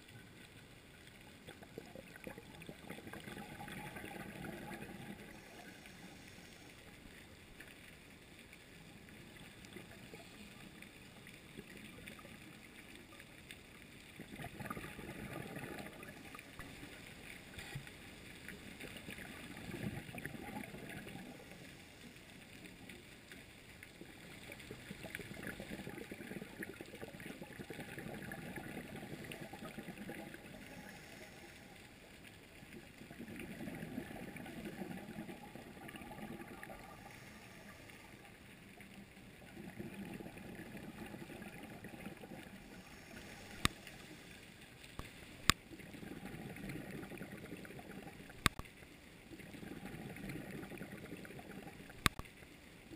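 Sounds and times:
bubbles gurgling underwater: 1.2 - 6.2, 14.0 - 23.1, 23.9 - 44.2, 45.4 - 52.3
diver breathing through regulator: 42.7 - 44.3.

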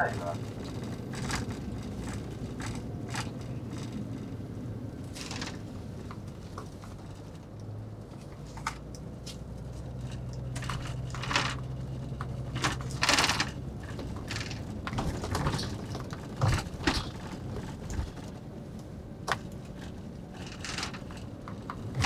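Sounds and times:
bus engine drone: 0.0 - 22.0
interior clicks and rattles: 0.0 - 22.0.

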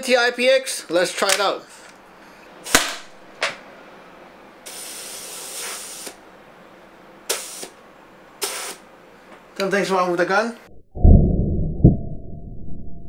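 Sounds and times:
gas hissing: 4.6 - 6.2, 7.2 - 7.8, 8.4 - 8.9.

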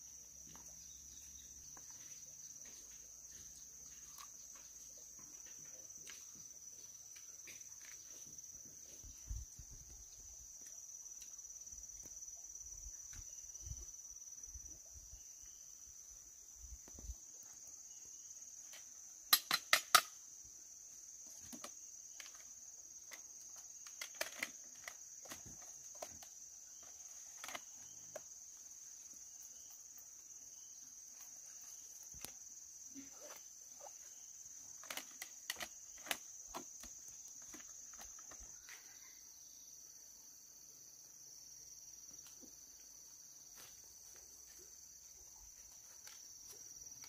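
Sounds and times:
insects droning: 0.0 - 47.0
light footsteps: 0.4 - 10.0.

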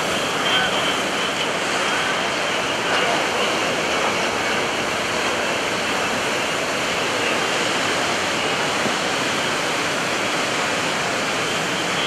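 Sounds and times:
jet engine roar flying past: 0.0 - 12.0.

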